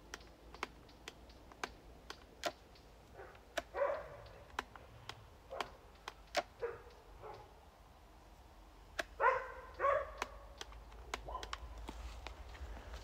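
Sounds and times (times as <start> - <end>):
sharp clicks and light knocks: 0.0 - 7.5, 8.9 - 13.0.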